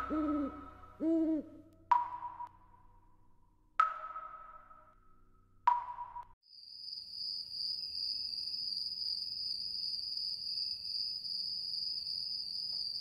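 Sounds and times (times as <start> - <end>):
crickets chirping: 6.5 - 13.0.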